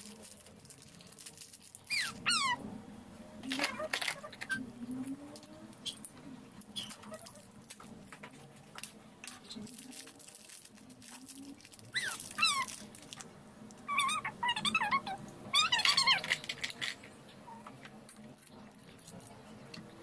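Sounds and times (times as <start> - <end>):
plastic toy capsules clicking: 15.7 - 17.0.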